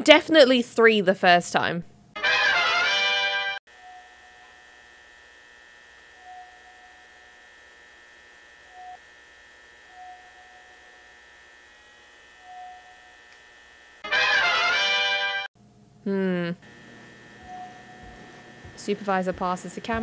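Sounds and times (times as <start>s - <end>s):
fluorescent lights humming: 3.8s - 14.0s, 15.6s - 20.0s.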